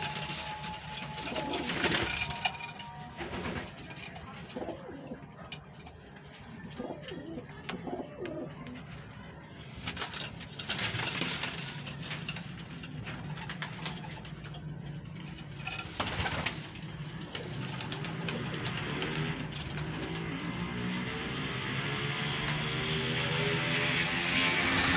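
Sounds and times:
pigeons cooing: 0:01.0 - 0:02.4, 0:04.2 - 0:09.3.

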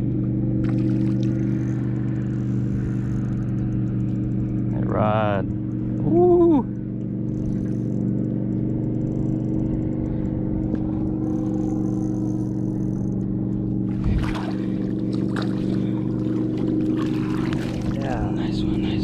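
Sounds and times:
boat motor humming: 0:00.0 - 0:19.0
fish splashing at surface: 0:13.9 - 0:18.1.

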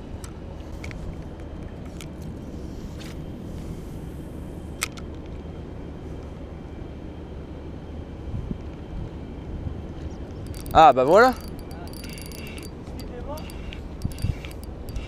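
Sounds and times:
fishing reel clicks: 0:10.5 - 0:15.0.

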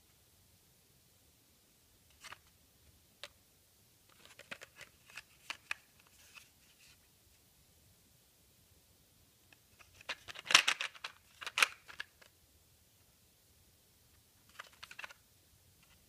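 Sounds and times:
plastic packaging crackling and clicking: 0:09.8 - 0:12.3.

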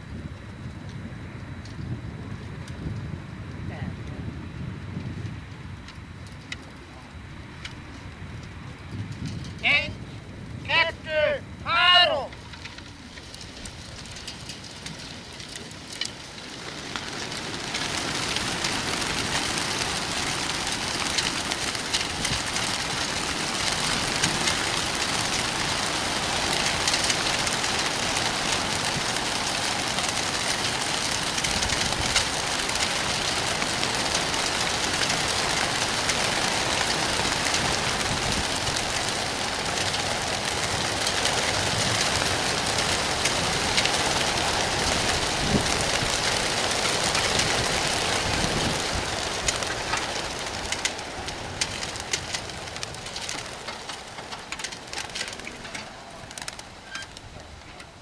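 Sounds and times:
pigeon wings flapping: 0:12.3 - 0:58.0.

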